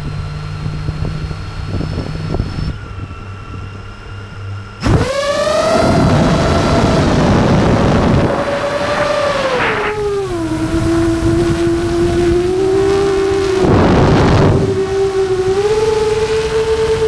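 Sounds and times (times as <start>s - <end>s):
remote control car motor whining: 4.8s - 17.0s
brief rushing noise: 8.1s - 10.3s.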